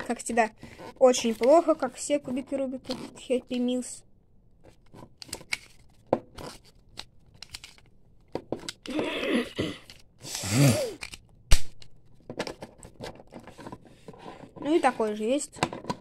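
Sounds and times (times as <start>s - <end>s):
plastic puzzle cube clicking: 4.8s - 9.0s, 9.8s - 13.2s.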